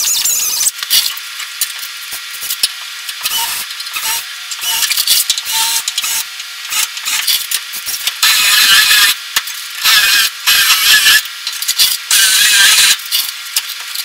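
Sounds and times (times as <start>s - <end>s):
drill cutting sheet metal: 2.2s - 13.3s.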